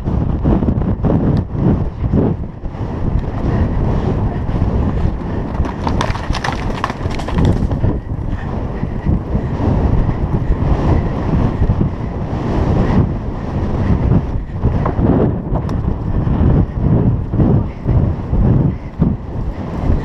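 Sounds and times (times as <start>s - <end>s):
wind buffeting microphone: 0.0s - 20.0s
horse hoofbeats on turf: 5.5s - 7.8s.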